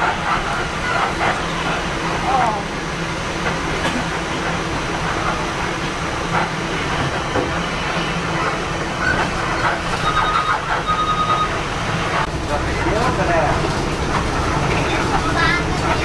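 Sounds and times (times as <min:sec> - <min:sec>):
bus engine and road rumble: 0:00.0 - 0:16.0
short high beeps: 0:10.0 - 0:11.6.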